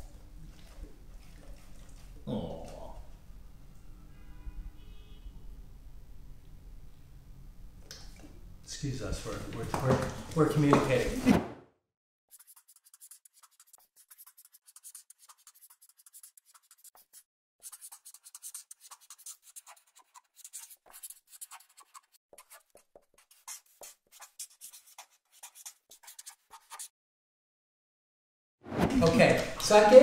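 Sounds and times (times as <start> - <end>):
pen scratching on paper: 12.3 - 26.9.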